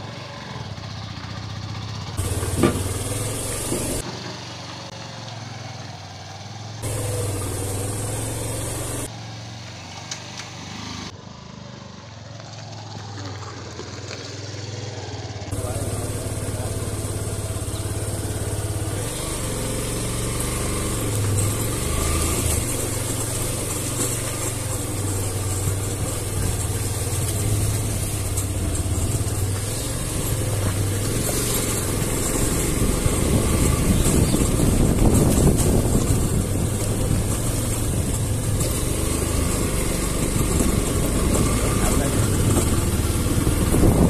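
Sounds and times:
motorcycle engine running: 0.0s - 44.0s
tires rolling over gravel: 0.0s - 44.0s.

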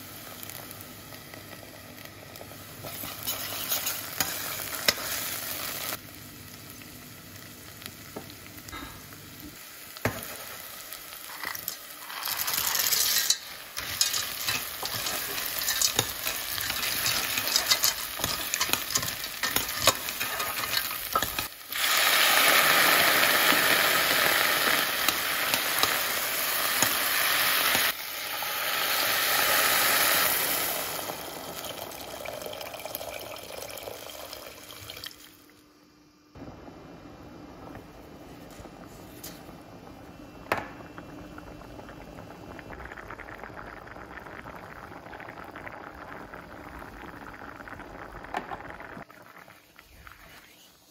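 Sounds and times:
onion sizzling in butter: 0.0s - 33.0s
metal spoon scraping a pot: 2.9s - 5.0s, 11.3s - 21.5s.

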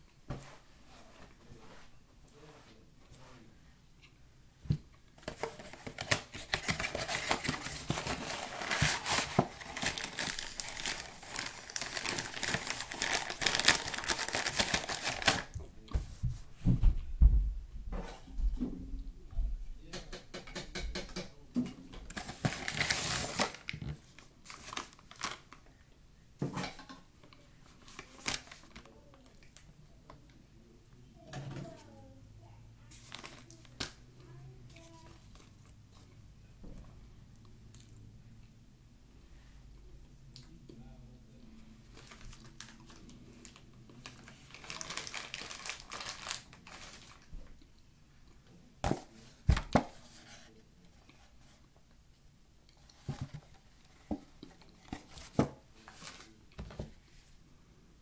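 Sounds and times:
packaging crinkling: 5.2s - 15.6s, 22.1s - 23.8s, 42.0s - 47.3s.

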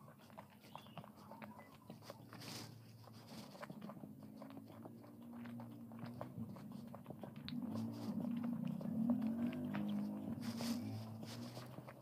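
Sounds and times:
chewing with wet mouth clicks: 0.0s - 12.0s.

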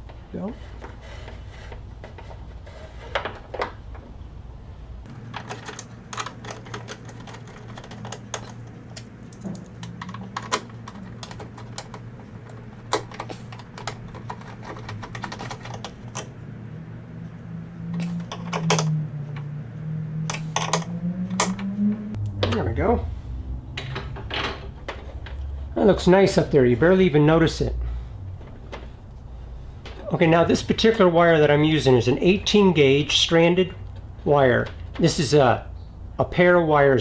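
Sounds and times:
low hum: 4.0s - 27.0s.

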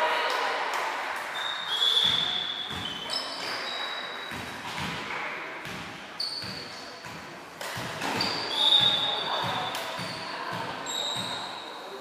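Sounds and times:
shoes squeaking on wooden floor: 8.0s - 11.6s.

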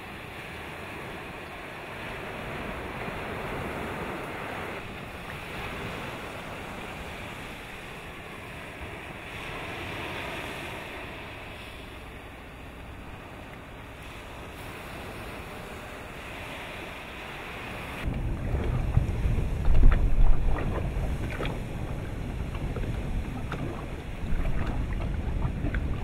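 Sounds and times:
water noise: 0.0s - 26.0s
wind buffeting microphone: 17.2s - 26.0s
avalanche low rumble: 18.0s - 26.0s.

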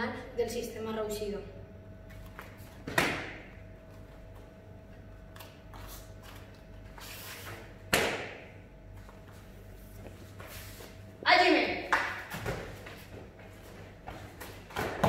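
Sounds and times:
hand slaps: 2.9s - 3.5s, 7.9s - 8.4s, 11.9s - 12.6s.

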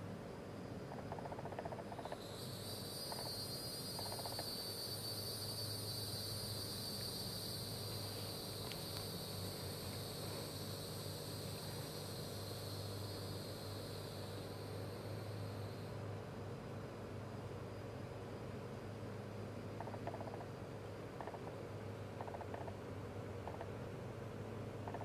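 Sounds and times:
insects trilling: 0.0s - 25.0s
low steady hum: 0.0s - 25.0s.

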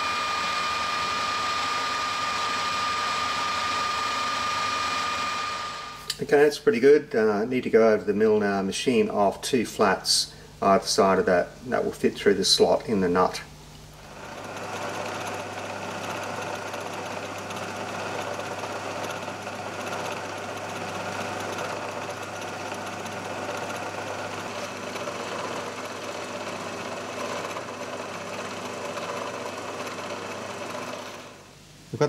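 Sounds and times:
milling machine whirring: 0.0s - 6.2s, 13.9s - 31.5s.

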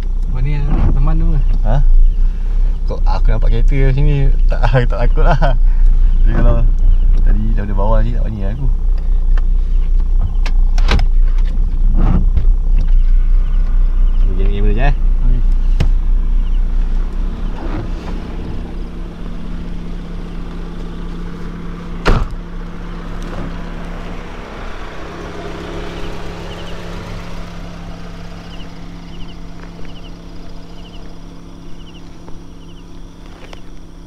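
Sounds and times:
engine hum: 0.0s - 34.0s
faint high chirps: 25.0s - 34.0s.

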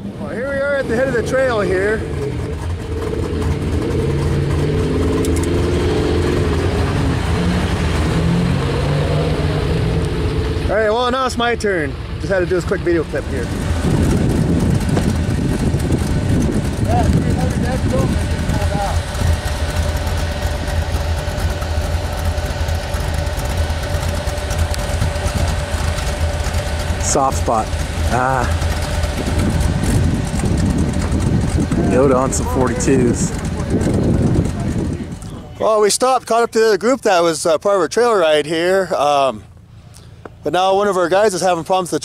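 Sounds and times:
truck engine running: 0.0s - 42.0s.

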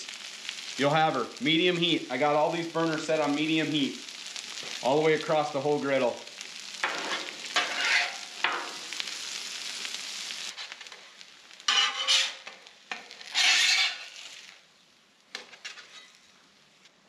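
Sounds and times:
potatoes sizzling: 0.0s - 17.0s
metal spatula scraping griddle: 6.8s - 8.8s, 11.6s - 14.6s, 15.3s - 16.3s.

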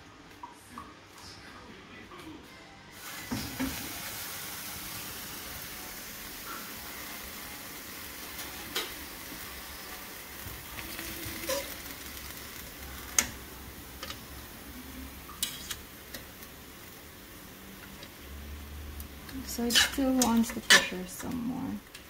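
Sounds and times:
metal fork clinking on pot: 19.7s - 21.0s.

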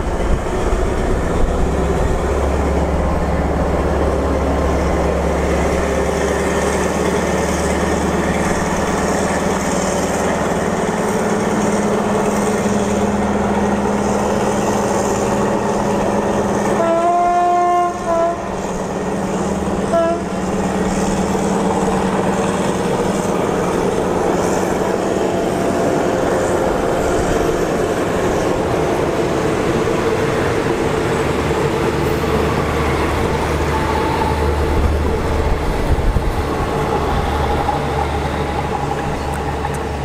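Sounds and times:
diesel locomotive engine drone: 0.0s - 40.0s
locomotive horn: 16.7s - 18.7s, 19.8s - 20.6s.

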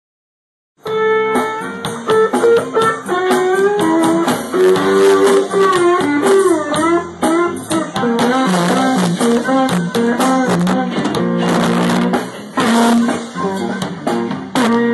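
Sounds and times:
slide electric guitar: 0.8s - 14.9s
amplified blues harmonica: 0.9s - 14.9s.

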